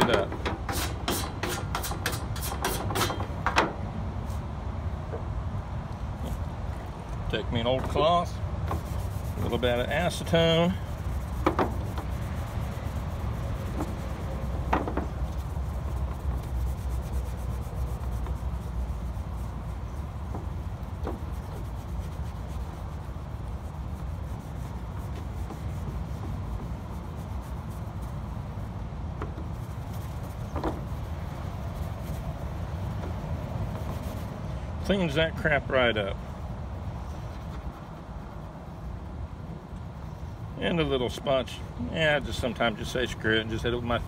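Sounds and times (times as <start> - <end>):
cloth rubbing on metal sheet: 8.6 - 28.8, 29.4 - 36.1.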